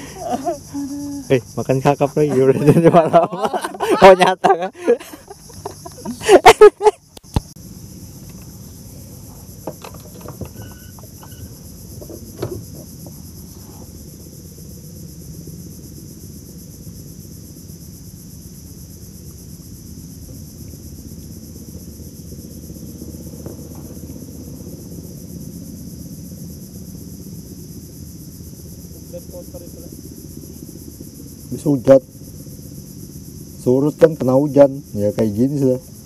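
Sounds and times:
insects chorus: 0:00.0 - 0:36.0
low steady rumble: 0:00.0 - 0:36.0
light knocks: 0:12.0 - 0:13.2.

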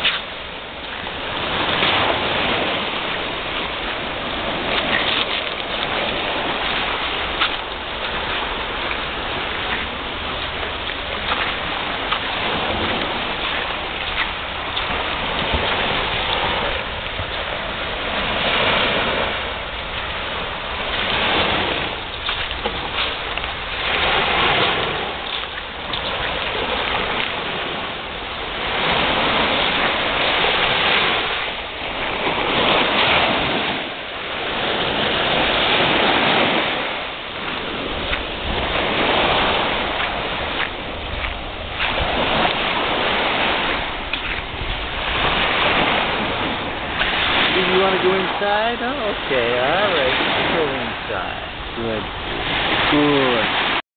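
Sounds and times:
ocean surf on a beach: 0:00.0 - 0:53.8.

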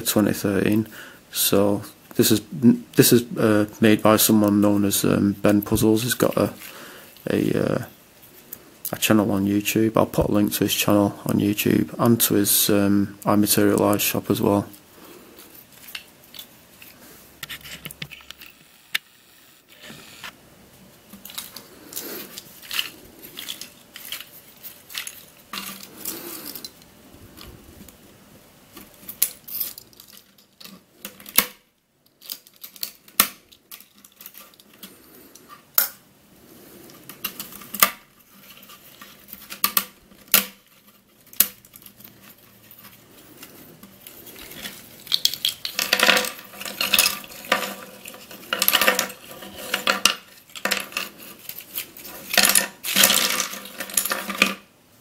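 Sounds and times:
plastic pieces rattling: 0:21.2 - 0:26.8, 0:32.1 - 0:35.0, 0:37.0 - 0:54.7
plastic snapping and cracking: 0:28.8 - 0:34.9, 0:37.1 - 0:38.1, 0:39.0 - 0:42.2, 0:44.4 - 0:54.6.

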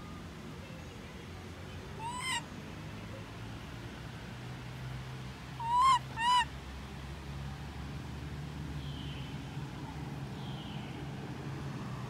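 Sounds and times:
baby monkey crying: 0:02.0 - 0:02.4, 0:05.6 - 0:06.4.

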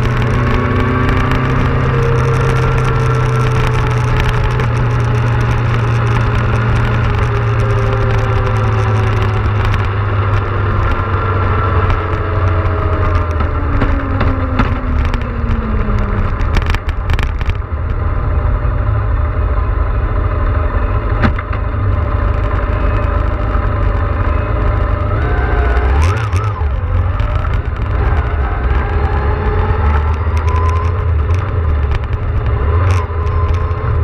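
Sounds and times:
wind buffeting microphone: 0:00.0 - 0:18.2
motorcycle engine running: 0:00.0 - 0:34.0.

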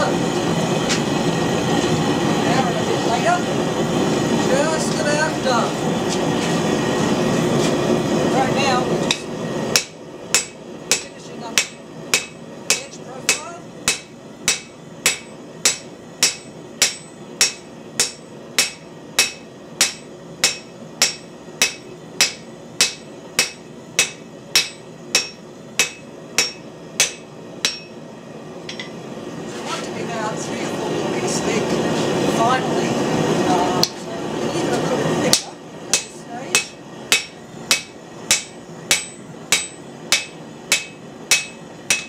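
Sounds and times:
hammer striking steel on anvil: 0:09.1 - 0:28.0, 0:28.7 - 0:29.0, 0:35.3 - 0:42.0.

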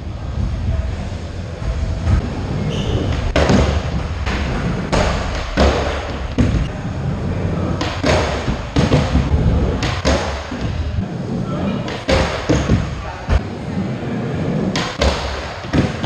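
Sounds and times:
skateboard clacks and thuds: 0:03.0 - 0:06.7, 0:07.7 - 0:10.8.

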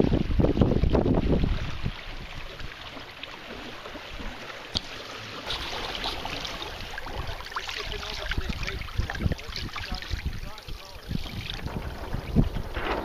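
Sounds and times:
water splashing along hull: 0:00.0 - 0:13.0.

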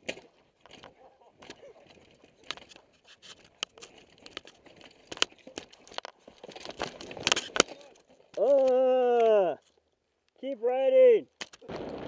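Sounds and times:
mountain bike clattering over rocks: 0:00.0 - 0:09.3.

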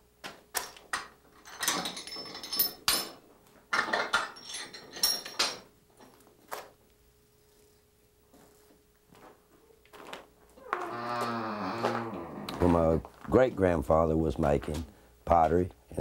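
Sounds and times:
metal door clanking and scraping: 0:10.7 - 0:13.0.

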